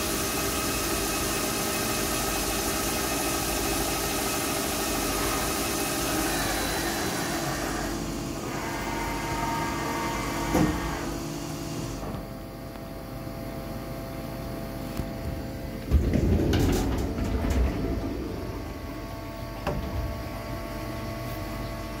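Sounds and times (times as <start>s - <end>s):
metal lathe humming: 4.0s - 11.4s.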